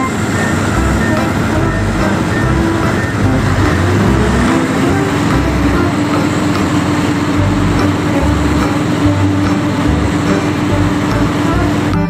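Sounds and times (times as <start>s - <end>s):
steady hum: 0.0s - 12.0s
truck engine rumbling: 0.0s - 12.0s.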